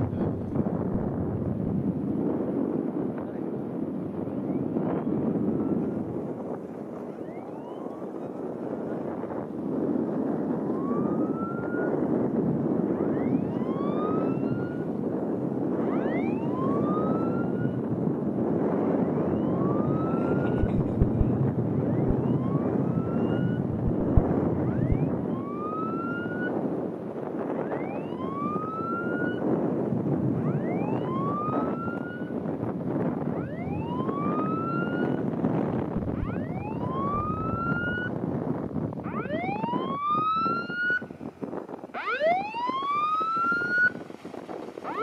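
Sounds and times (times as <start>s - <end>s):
steady rushing noise: 0.0s - 3.9s, 20.0s - 25.4s, 35.8s - 39.6s
boat siren whooping: 4.1s - 29.6s, 30.2s - 38.2s, 39.0s - 45.0s.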